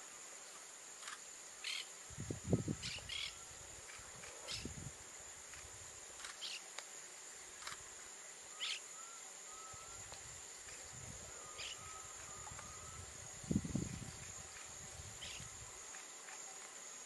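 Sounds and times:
insects calling: 0:00.0 - 0:17.0
faint wavering whistles: 0:08.5 - 0:10.1, 0:11.2 - 0:13.2
bird chirps: 0:08.6 - 0:10.0, 0:11.5 - 0:13.0.

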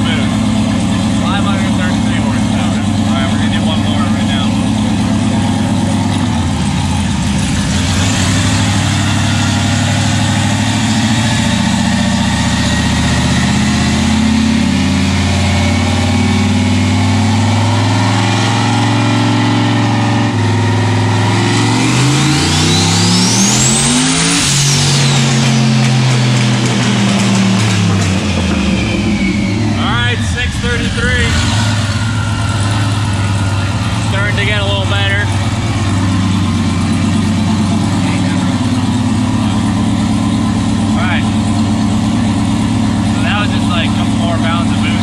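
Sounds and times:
car engine revving on a dyno: 0:00.0 - 0:45.0
turbo whistle: 0:28.5 - 0:30.4.

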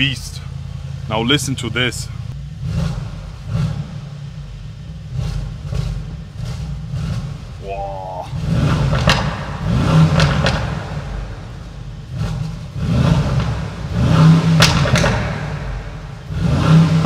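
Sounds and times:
exhaust crackles: 0:00.0 - 0:17.0
car engine revving: 0:00.4 - 0:17.0.

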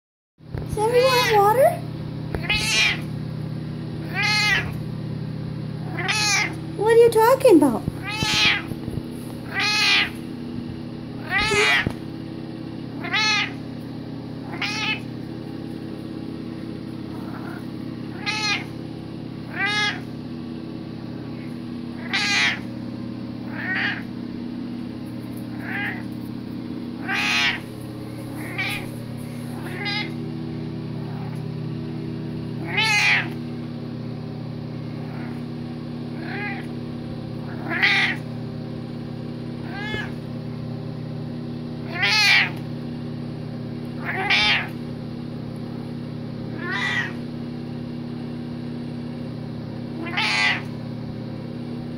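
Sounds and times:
steady low hum: 0:00.4 - 0:51.9
cat meowing: 0:02.4 - 0:03.1, 0:04.0 - 0:04.8, 0:05.9 - 0:06.6, 0:08.0 - 0:08.8, 0:09.4 - 0:10.2, 0:11.2 - 0:12.0, 0:13.0 - 0:13.6, 0:14.4 - 0:15.1, 0:17.1 - 0:18.7, 0:19.5 - 0:20.1, 0:22.0 - 0:22.7, 0:23.5 - 0:24.1, 0:25.6 - 0:26.1, 0:27.0 - 0:27.7, 0:28.4 - 0:29.0, 0:29.6 - 0:30.2, 0:32.6 - 0:33.4, 0:36.2 - 0:36.7, 0:37.5 - 0:38.2, 0:39.6 - 0:40.2, 0:41.8 - 0:42.6, 0:44.0 - 0:44.8, 0:46.5 - 0:47.2, 0:50.0 - 0:50.7.

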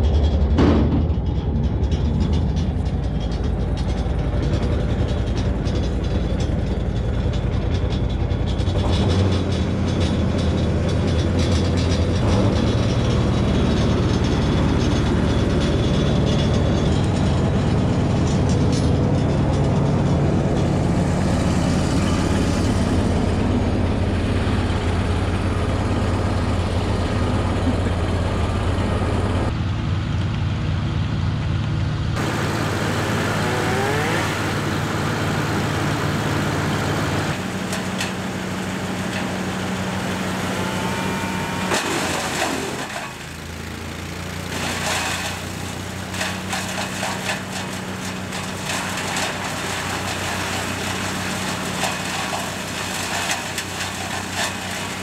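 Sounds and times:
wood chipper engine running: 0:00.0 - 0:55.0.

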